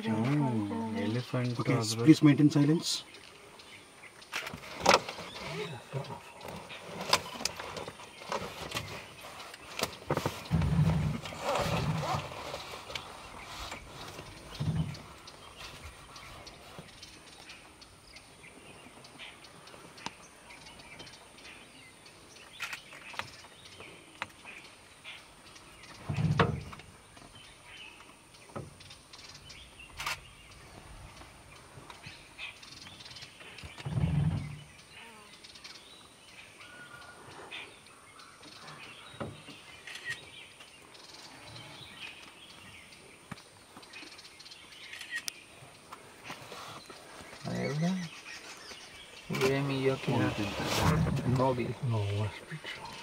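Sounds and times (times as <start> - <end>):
faint bird chirps: 12.0 - 50.5.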